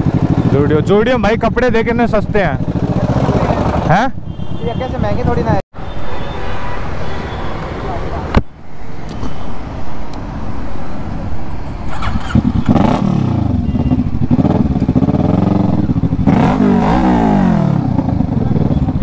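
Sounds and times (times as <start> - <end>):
motorcycle engine revving: 0.0 - 5.6, 11.9 - 19.0.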